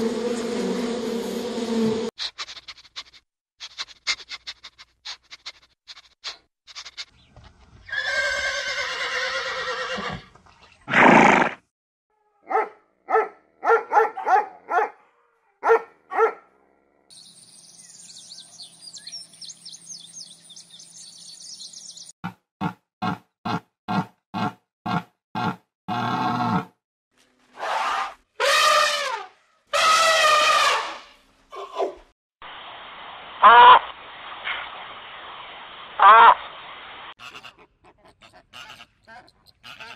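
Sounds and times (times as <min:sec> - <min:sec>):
dog barking and yelping: 0:12.4 - 0:15.0, 0:15.6 - 0:16.4.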